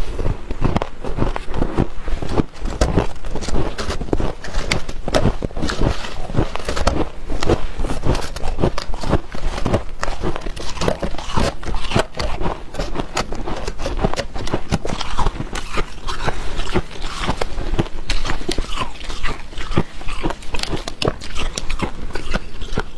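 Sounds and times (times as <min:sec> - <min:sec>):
frost crunching and squeaking: 0:00.0 - 0:22.9.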